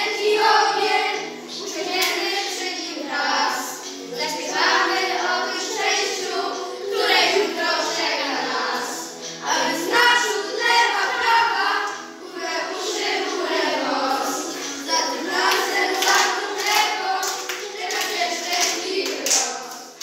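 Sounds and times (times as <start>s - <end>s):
children singing: 0.0s - 20.0s
hand claps: 14.5s - 20.0s.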